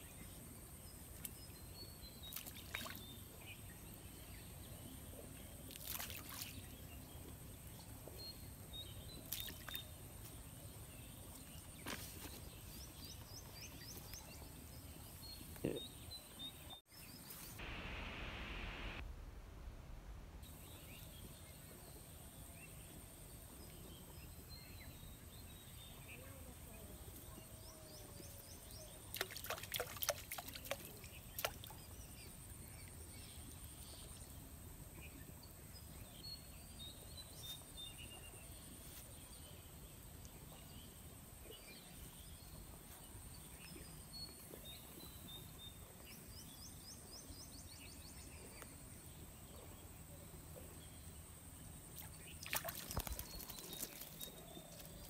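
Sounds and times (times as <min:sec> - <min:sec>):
high-pitched hum: 0:17.6 - 0:20.0.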